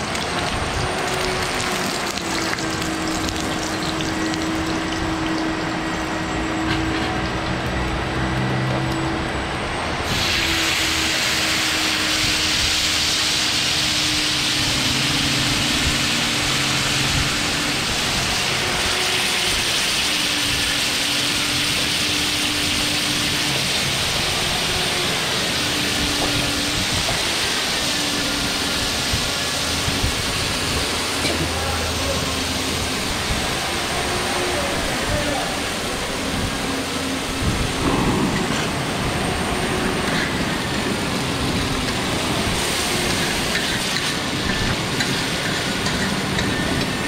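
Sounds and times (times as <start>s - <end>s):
water poured onto hot plate: 0.0s - 5.8s
sizzling on a hot plate: 10.1s - 34.5s, 39.2s - 47.0s.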